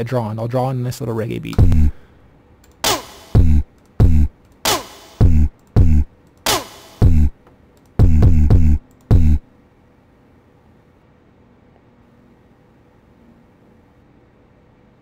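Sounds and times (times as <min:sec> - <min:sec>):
sharp snare hits: 0:02.8 - 0:07.3
deep kick drum hits: 0:03.4 - 0:04.3.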